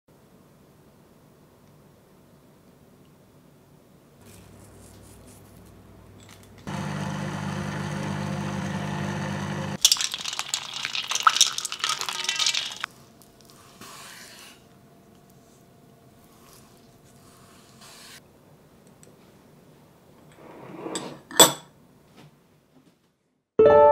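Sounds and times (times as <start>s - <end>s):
small motor humming: 6.6s - 9.8s
plastic bag crinkling: 9.8s - 13.0s.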